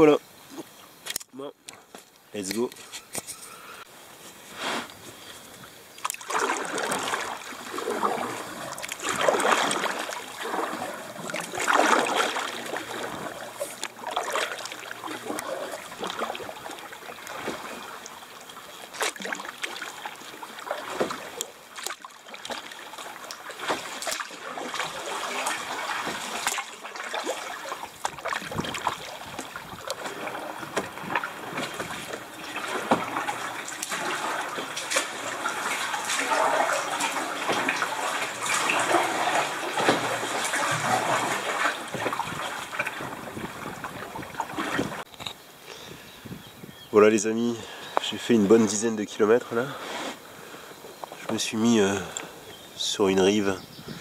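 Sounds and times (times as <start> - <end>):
paddle strokes splashing water: 2.6 - 45.1
water trickling and dripping: 5.9 - 45.1.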